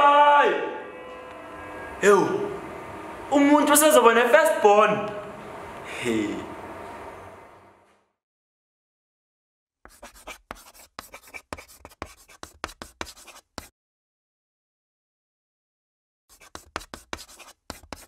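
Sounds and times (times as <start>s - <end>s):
chalk scratching on chalkboard: 9.8s - 13.7s, 16.3s - 18.0s.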